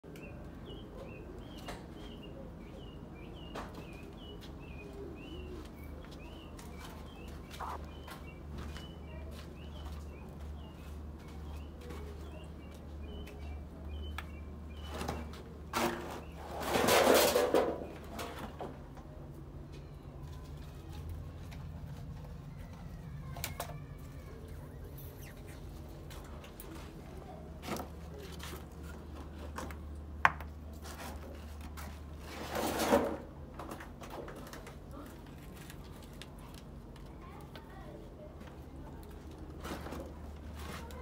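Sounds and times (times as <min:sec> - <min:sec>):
small birds chirping: 0:00.1 - 0:16.5, 0:22.2 - 0:29.2
steady low hum: 0:04.6 - 0:11.2, 0:24.0 - 0:30.2.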